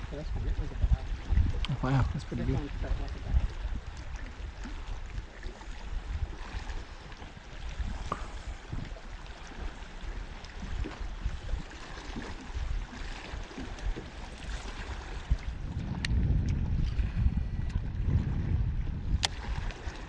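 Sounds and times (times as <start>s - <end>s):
water lapping against boat hull: 0.0s - 20.0s
low rumble: 15.2s - 19.3s.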